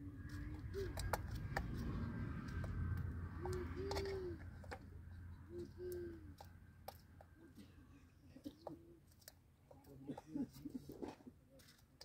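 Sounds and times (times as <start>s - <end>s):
steady low rumble: 0.0s - 7.2s
low cooing bird calls: 0.1s - 6.6s.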